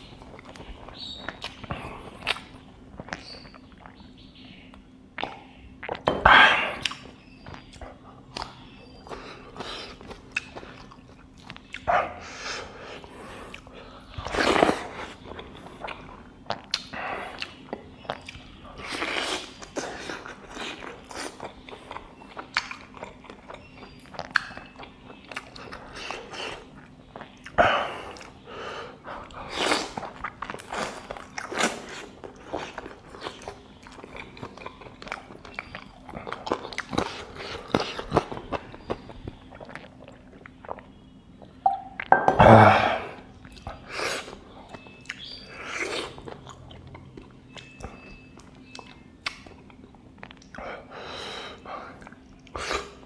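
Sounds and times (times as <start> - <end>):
person chewing and biting: 13.0 - 28.4, 29.3 - 41.0.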